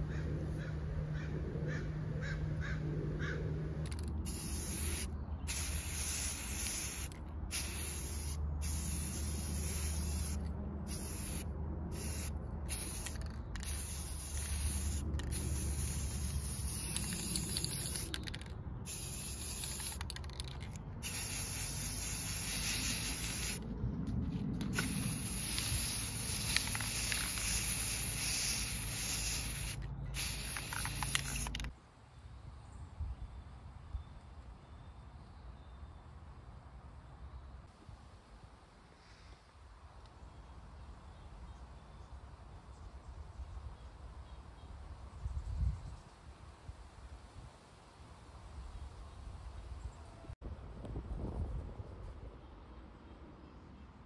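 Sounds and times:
spray paint can hissing: 0:03.8 - 0:23.6, 0:24.4 - 0:31.7.

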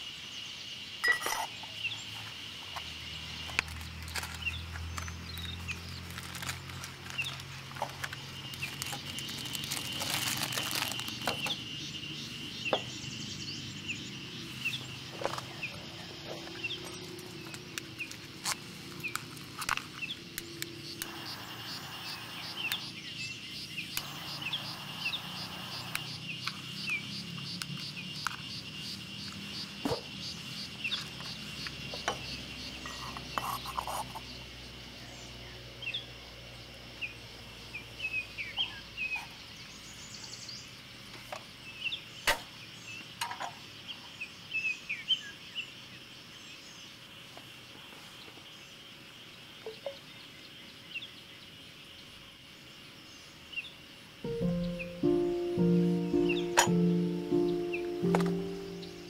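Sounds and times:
birds chirping: 0:00.0 - 0:34.4, 0:54.3 - 0:59.0
insects calling: 0:00.0 - 0:59.0
fast ticking insect trill: 0:20.7 - 0:32.9.

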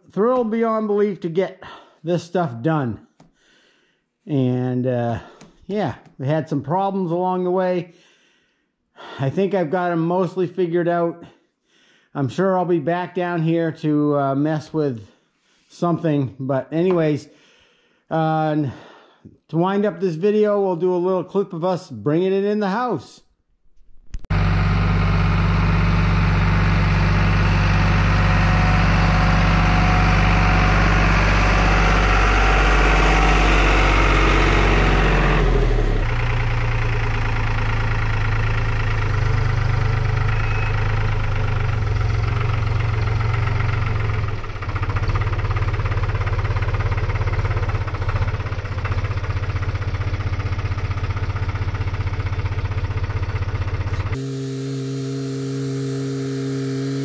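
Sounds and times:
tractor diesel engine running: 0:24.1 - 0:57.0.

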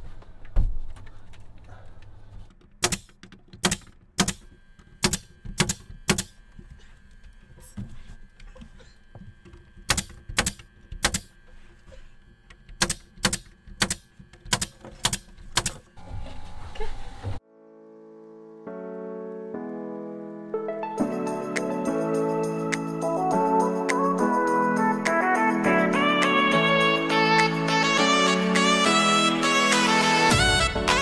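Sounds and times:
pneumatic nailer firing nails: 0:02.5 - 0:06.8, 0:09.5 - 0:11.4, 0:12.5 - 0:15.9.

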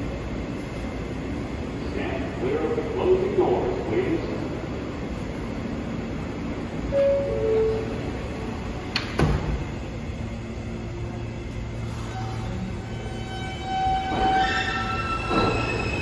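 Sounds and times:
subway train rumble: 0:00.0 - 0:16.0.

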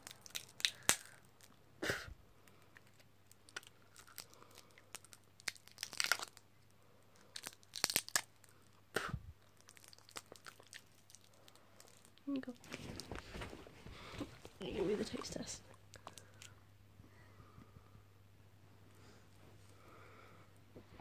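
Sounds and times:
plastic wrapper crackling and tearing: 0:00.0 - 0:01.6, 0:02.4 - 0:08.8, 0:09.4 - 0:13.4, 0:15.9 - 0:16.5.

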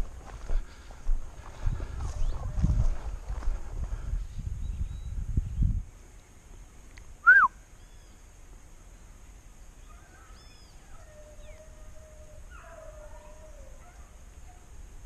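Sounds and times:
faint bird chirps: 0:04.2 - 0:06.3, 0:07.2 - 0:08.3, 0:08.9 - 0:13.8
bird calls: 0:07.2 - 0:08.2, 0:09.8 - 0:14.6.

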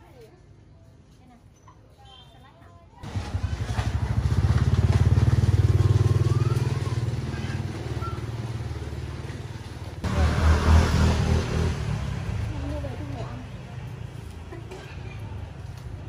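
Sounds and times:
small engine pulsing: 0:03.0 - 0:08.9.

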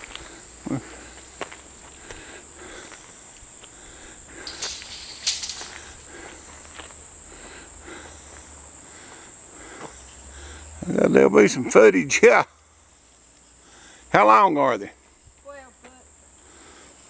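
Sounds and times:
light footsteps on dirt: 0:00.0 - 0:07.0
high-pitched insect drone: 0:00.0 - 0:17.0
foot scuffs: 0:04.4 - 0:07.0.

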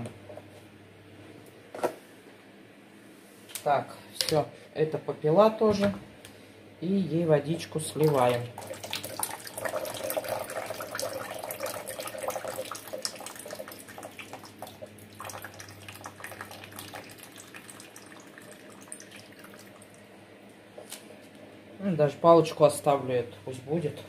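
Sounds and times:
water trickling and dripping: 0:08.0 - 0:20.0.

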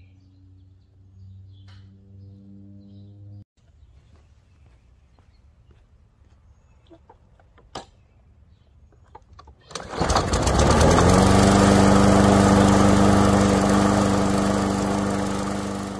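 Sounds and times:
lawn mower engine running: 0:09.7 - 0:15.9.

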